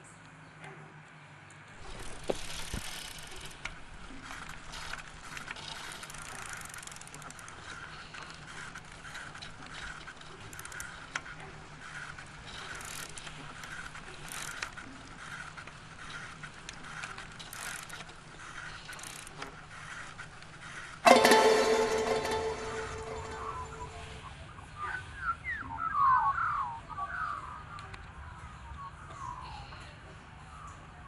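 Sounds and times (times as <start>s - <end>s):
bicycle chain ticking and rattling: 1.8s - 24.2s.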